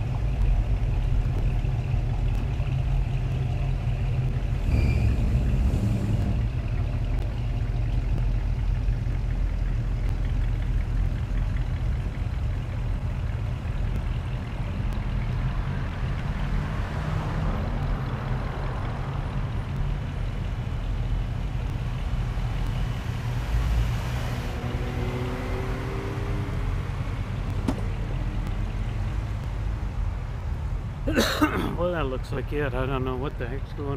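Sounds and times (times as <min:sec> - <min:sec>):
cars driving past: 0:00.0 - 0:09.2, 0:10.4 - 0:33.9
steady low rumble: 0:00.0 - 0:16.6, 0:17.6 - 0:24.0.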